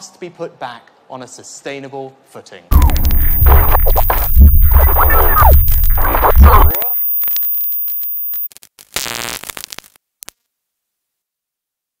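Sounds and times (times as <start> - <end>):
burst of static: 2.7 - 10.0
glitch crackling: 2.7 - 10.0.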